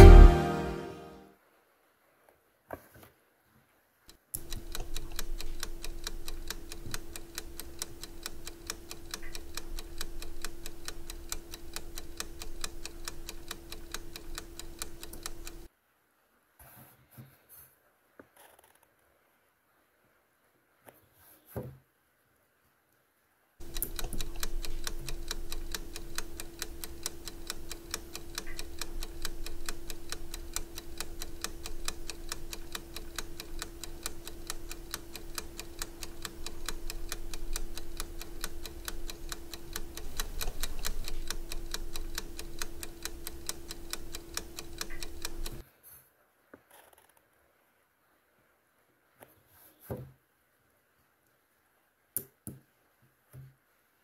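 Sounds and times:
fast clock ticking: 0.0s - 0.7s, 4.4s - 15.7s, 23.6s - 45.6s
steady low tone: 0.0s - 1.2s.

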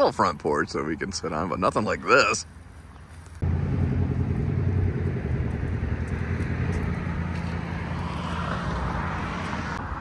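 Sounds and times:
vehicle engine humming: 3.4s - 10.0s.

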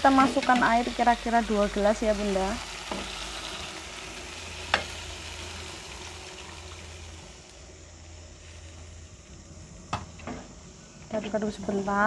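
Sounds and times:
water pouring into a wok: 1.0s - 7.5s.

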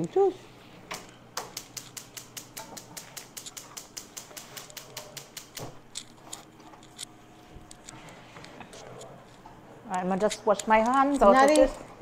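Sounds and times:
gas stove igniter clicking: 0.9s - 5.8s.

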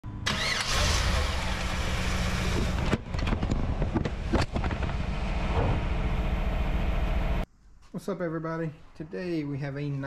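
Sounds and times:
car engine idling: 4.2s - 7.4s.

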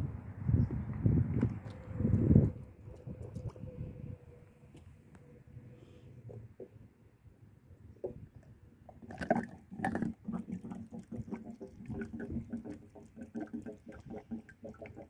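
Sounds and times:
bottle glugging into fuel filler: 8.9s - 15.0s.

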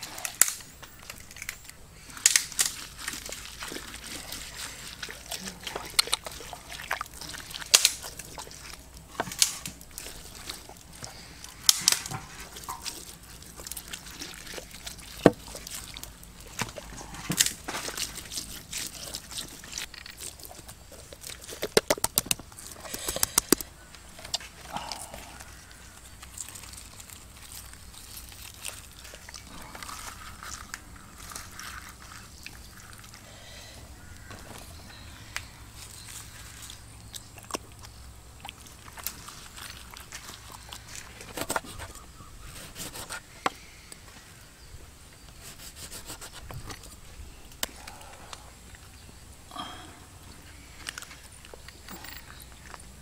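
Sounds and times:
sharp clicks and crackles: 0.0s - 4.0s, 6.9s - 25.0s
hands squelching paste into fish: 0.0s - 44.3s.

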